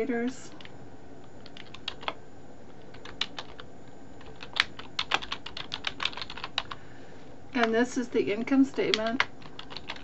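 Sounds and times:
keystrokes on computer keyboard: 1.4 - 2.2, 2.8 - 6.8, 8.7 - 10.0.

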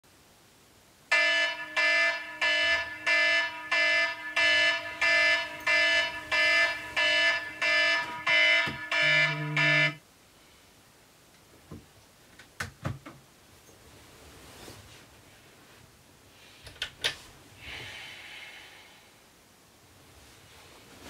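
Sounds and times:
electronic alarm beeping: 1.1 - 10.0
lower tone: 2.8 - 10.0.

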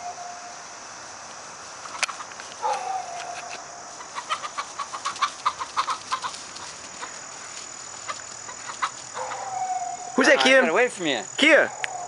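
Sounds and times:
chickens clucking and squawking: 1.9 - 10.4.

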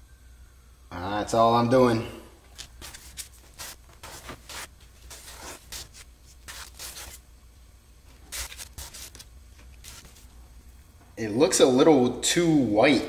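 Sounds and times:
spreader scraping on cardboard: 2.7 - 7.2, 8.3 - 10.3.

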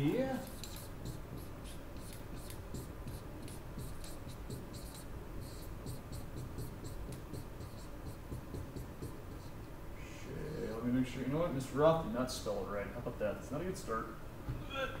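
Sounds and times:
marker squeaking on a whiteboard: 0.0 - 9.8.

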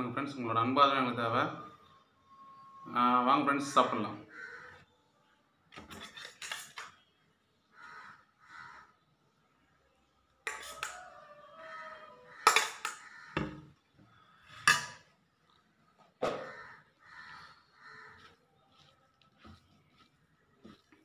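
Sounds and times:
metal spoon clinking on steel bowl: 5.9 - 7.0, 10.5 - 11.0, 12.4 - 13.0, 14.6 - 15.1.

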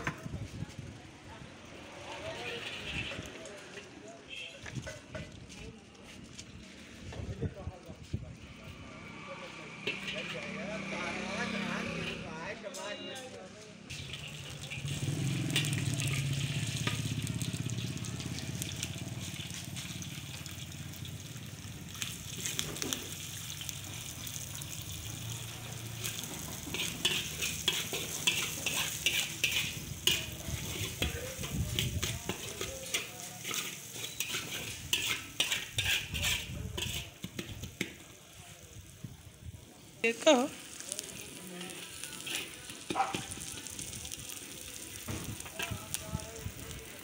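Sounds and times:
spatula scraping a wok: 1.8 - 5.5, 8.7 - 10.5, 11.4 - 12.3, 13.9 - 20.1, 25.8 - 38.2, 40.6 - 44.4
vegetables sizzling in hot oil: 13.9 - 47.0.

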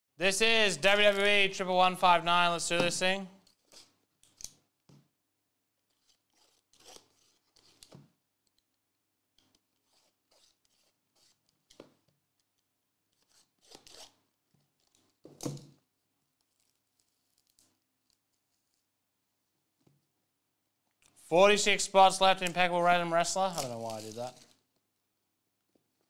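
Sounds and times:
box cutter cutting and scraping: 5.9 - 7.9.

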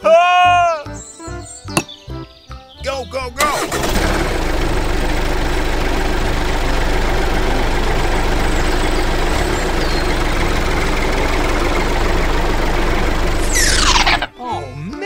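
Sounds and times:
truck engine running: 3.4 - 14.3.

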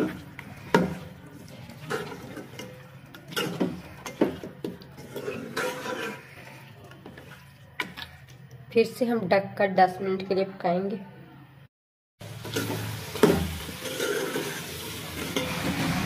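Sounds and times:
spoon scraping through curry: 0.0 - 8.4, 13.7 - 15.6.

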